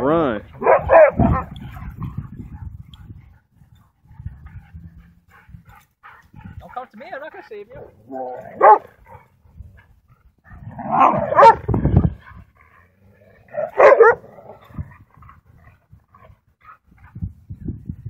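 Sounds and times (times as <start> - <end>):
dogs growling and barking: 0.5 - 6.9, 7.7 - 17.2.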